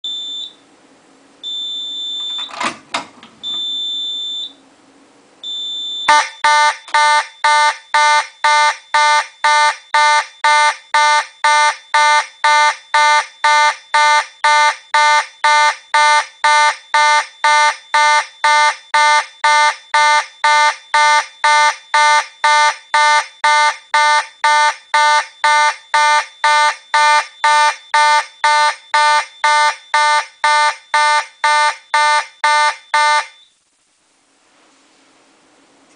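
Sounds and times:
fire alarm horn blasts: 0:05.4 - 0:33.4.

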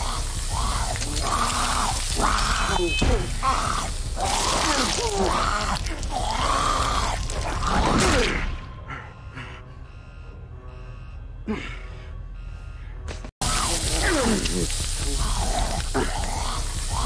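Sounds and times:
zombie snarling and groaning: 0:00.0 - 0:08.6, 0:13.4 - 0:17.0
steady music tones: 0:00.0 - 0:17.0.

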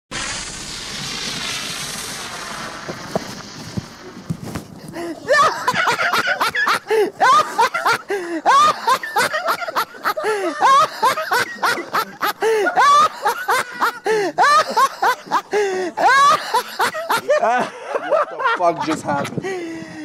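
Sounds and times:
man laughing hard: 0:05.0 - 0:19.8
breathy gasps: 0:08.1 - 0:08.5, 0:14.0 - 0:14.4, 0:15.5 - 0:16.0, 0:19.4 - 0:20.0.

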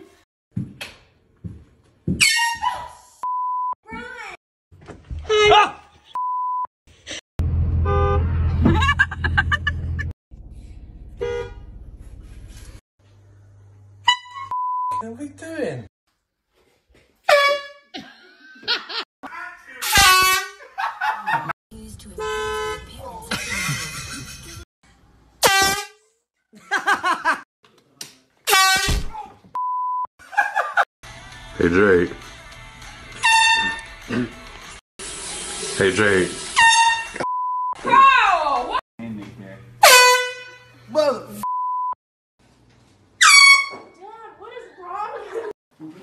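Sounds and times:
person shouting: 0:05.3 - 0:05.8
person yelling: 0:05.3 - 0:05.9
horn blasts: 0:07.5 - 0:08.6, 0:11.2 - 0:11.8, 0:33.2 - 0:33.9, 0:39.8 - 0:40.9
air horn blasts: 0:07.7 - 0:08.5, 0:11.2 - 0:11.6, 0:14.0 - 0:14.4, 0:17.3 - 0:17.9, 0:19.8 - 0:20.6, 0:25.4 - 0:26.0, 0:28.5 - 0:29.0, 0:33.2 - 0:33.8, 0:39.8 - 0:40.9, 0:43.2 - 0:43.8
censor beep: 0:14.5 - 0:15.0, 0:29.6 - 0:30.1, 0:37.2 - 0:37.8, 0:41.4 - 0:42.0.

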